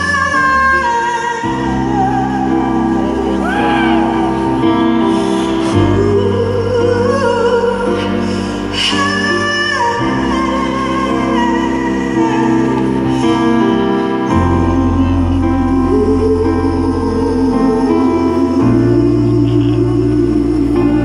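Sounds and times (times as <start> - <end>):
female singers holding long notes: 0.0 - 13.7, 14.3 - 21.0
rock band sustained chords: 9.8 - 21.0.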